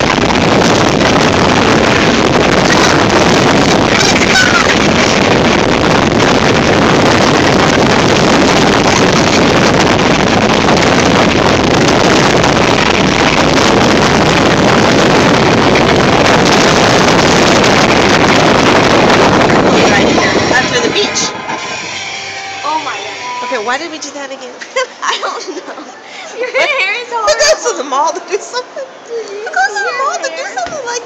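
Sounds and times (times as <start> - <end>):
powerful blower rushing air: 0.0 - 24.4
wind buffeting microphone: 0.0 - 24.4.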